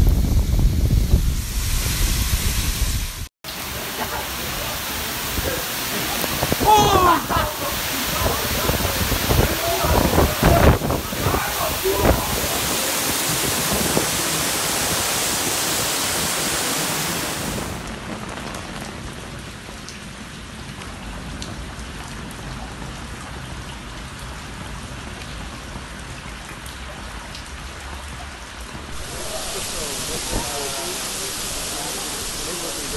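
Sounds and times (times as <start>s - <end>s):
heavy rain rushing hiss: 0.0s - 19.0s, 28.7s - 32.9s
water drips and splashes: 3.4s - 32.9s.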